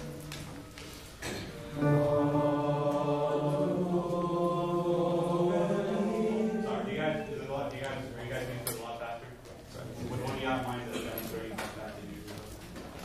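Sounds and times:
boys' choir singing a chord: 1.2 - 7.5.

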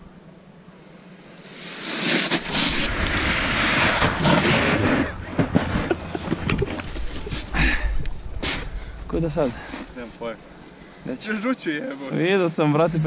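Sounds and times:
snowboard scraping over snow: 1.2 - 10.4
crunches and knocks in snow: 1.9 - 7.6.

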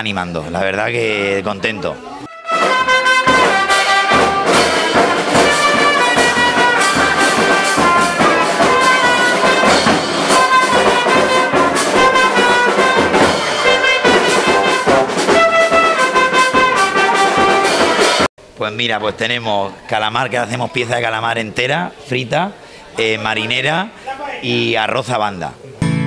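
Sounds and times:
brass instruments playing tune: 2.2 - 18.3
drum beats: 2.2 - 18.4.

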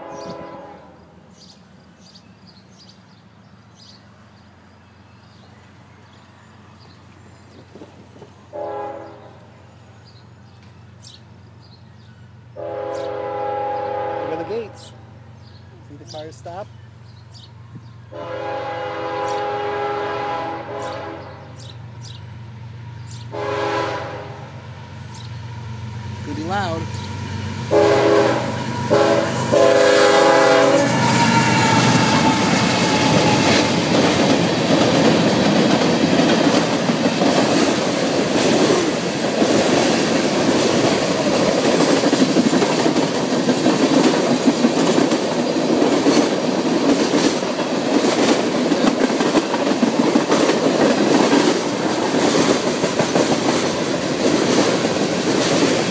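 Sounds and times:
locomotive horn blasts: 0.0 - 1.1, 8.5 - 9.5, 12.6 - 15.0, 18.1 - 21.6, 23.3 - 24.5, 27.7 - 33.3
train wheels clattering over rails: 6.8 - 8.6, 19.1 - 55.9.

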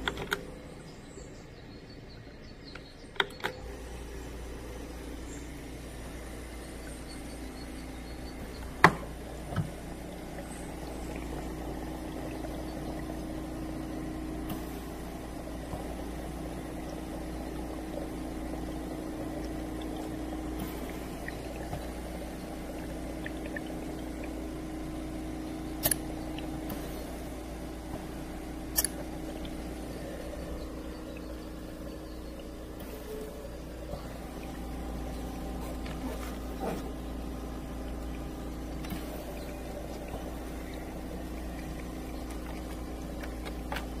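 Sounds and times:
oxygen concentrator humming: 0.0 - 44.0
bubbling water: 4.0 - 44.0
sharp clicks: 25.8 - 26.9, 28.7 - 29.6.

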